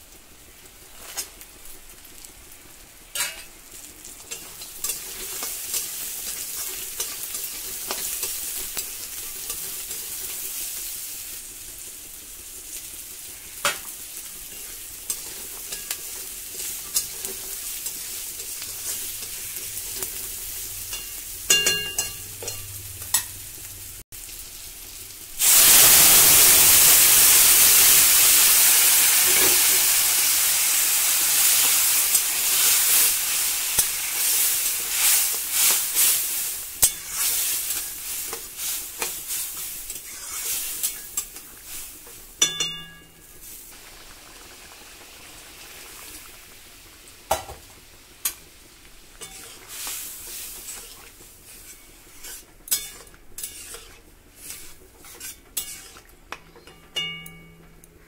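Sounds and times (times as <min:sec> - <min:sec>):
vegetables frying in oil: 0:00.0 - 0:57.4
liquid hissing in hot pan: 0:02.1 - 0:56.1
metal spatula scraping a pan: 0:03.2 - 0:03.6, 0:04.2 - 0:10.8, 0:14.5 - 0:23.4, 0:31.4 - 0:43.6, 0:49.2 - 0:57.6.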